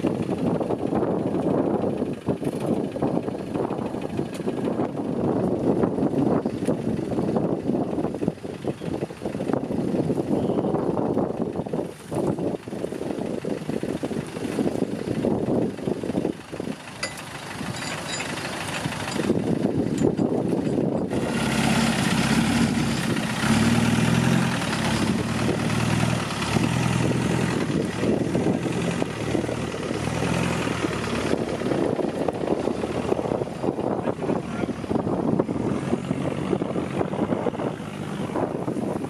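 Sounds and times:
car engine revving: 20.4 - 39.0.

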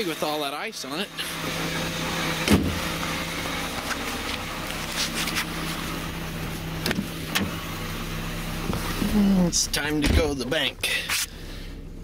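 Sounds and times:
car engine idling: 0.0 - 12.0
car door clicks: 6.8 - 7.6.

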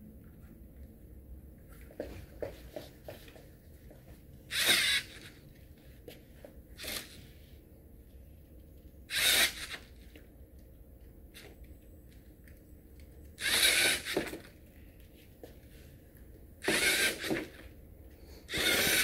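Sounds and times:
servo motors whirring: 4.5 - 5.4, 6.8 - 7.2, 9.1 - 9.9, 13.4 - 14.5, 16.6 - 17.6, 18.5 - 19.0.

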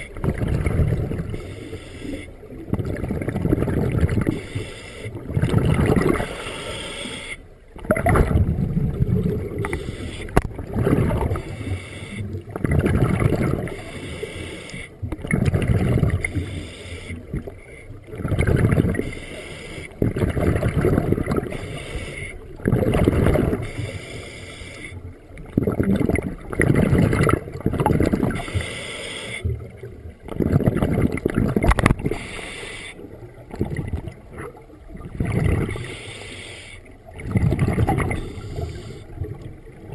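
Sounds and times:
gurgling exhaust bubbles: 0.0 - 1.5, 2.5 - 4.4, 5.1 - 6.4, 7.7 - 11.6, 12.3 - 13.8, 15.1 - 16.3, 17.2 - 19.1, 20.0 - 21.6, 22.6 - 23.7, 25.4 - 28.4, 29.6 - 32.2, 33.1 - 35.9, 37.0 - 39.9
diver regulator breathing: 1.2 - 2.5, 4.2 - 5.3, 6.1 - 7.5, 9.5 - 10.5, 11.2 - 12.5, 13.7 - 15.0, 16.2 - 17.9, 18.9 - 20.1, 21.4 - 22.5, 23.5 - 25.1, 28.2 - 29.6, 31.8 - 33.2, 35.5 - 37.0, 37.8 - 39.4.

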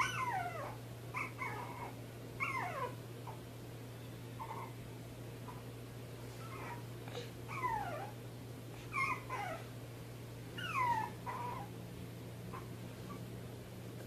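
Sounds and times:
puppy whimpering and yelping: 0.0 - 3.4, 4.3 - 4.8, 6.3 - 6.9, 7.5 - 8.2, 8.8 - 9.7, 10.6 - 11.8, 12.5 - 13.3
steady low hum: 0.0 - 14.0.

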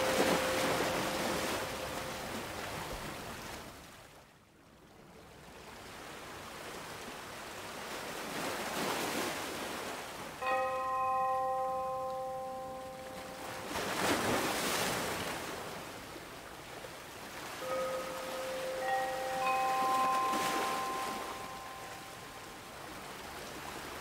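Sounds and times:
bell-like chime ringing: 0.0 - 2.8, 10.4 - 14.1, 17.6 - 22.7
sea waves surging: 0.0 - 3.9, 6.6 - 24.0.

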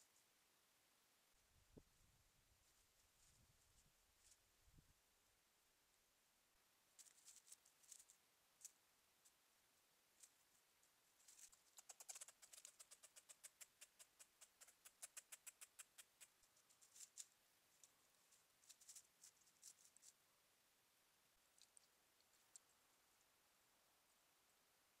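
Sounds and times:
squirrel rustling dry leaves: 7.0 - 8.8, 11.2 - 20.2.

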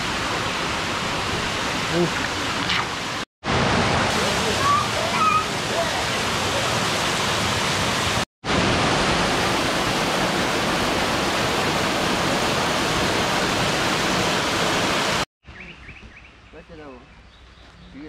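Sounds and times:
waterfall pouring onto rocks: 4.0 - 8.2
birds chirping: 15.4 - 18.0.

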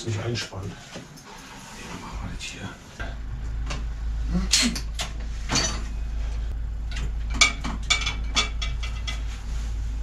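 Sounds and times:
steady low hum: 0.0 - 10.0
metal clanks and rattles of bicycle: 4.8 - 9.7.

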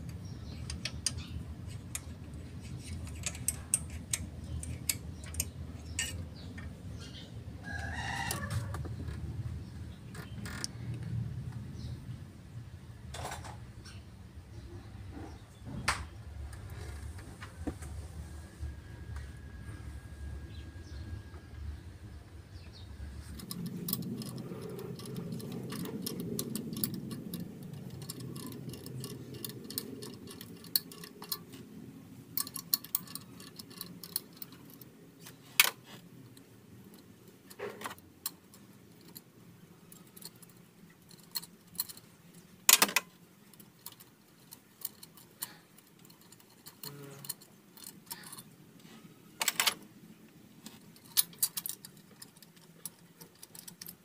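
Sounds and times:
small metallic clicks and clinks: 0.0 - 7.2, 23.2 - 49.9, 50.6 - 54.0.

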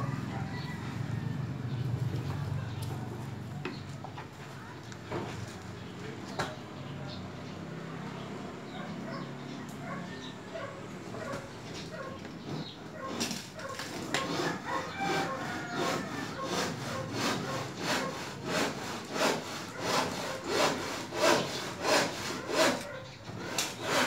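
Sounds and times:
rhythmic scraping strokes: 12.4 - 24.0.

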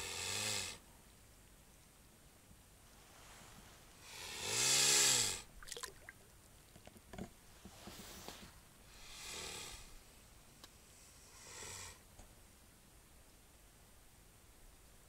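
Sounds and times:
soft breathy hiss: 0.0 - 6.7, 7.4 - 15.0
small water splashes: 5.6 - 6.4.

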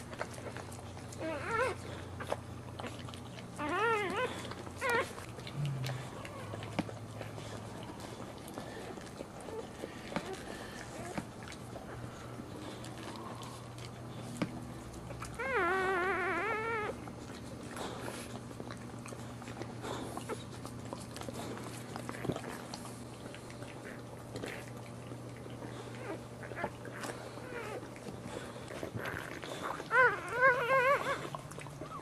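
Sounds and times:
wet licking clicks and rustles: 0.0 - 15.6, 16.3 - 32.0
steady low hum: 0.0 - 32.0
puppy squeaky cry: 1.2 - 1.8, 3.6 - 5.2, 15.4 - 17.0, 29.8 - 32.0.

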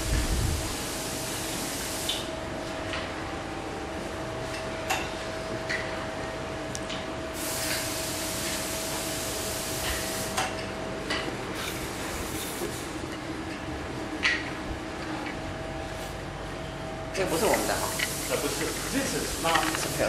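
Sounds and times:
hiss: 0.0 - 2.3, 7.4 - 10.4, 17.4 - 20.0
faint machine hum: 0.0 - 20.0.

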